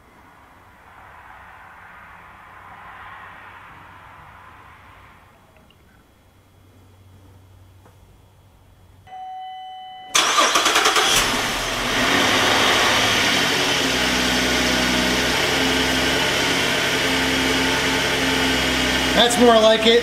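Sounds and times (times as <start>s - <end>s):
car engine starting and idling: 10.1s - 20.0s.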